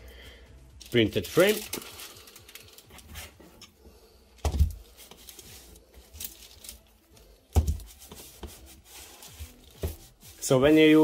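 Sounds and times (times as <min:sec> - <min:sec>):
paper rustling: 0:01.2 - 0:03.6, 0:04.6 - 0:11.0.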